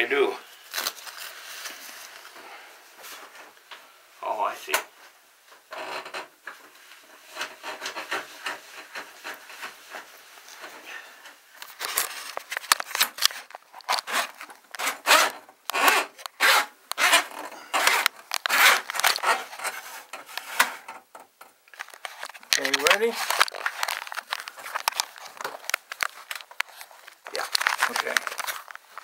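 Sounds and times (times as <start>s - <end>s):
rubbing and scraping strokes: 11.7s - 20.9s.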